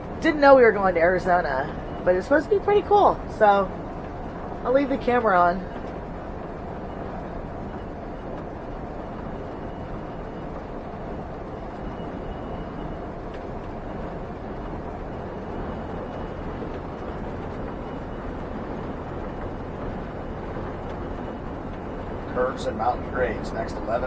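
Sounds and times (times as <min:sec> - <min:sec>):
motorhome road noise in cab: 0:00.0 - 0:24.0.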